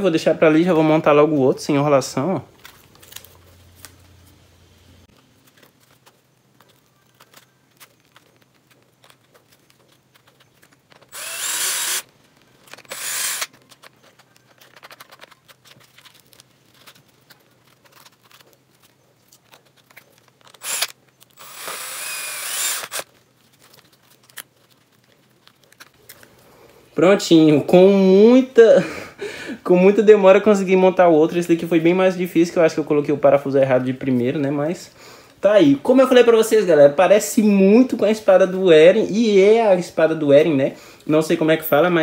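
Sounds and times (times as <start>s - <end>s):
plastic parts clicking: 5.4s - 26.3s
electric screwdriver driving screws: 11.0s - 12.1s, 12.7s - 13.6s, 20.5s - 23.1s.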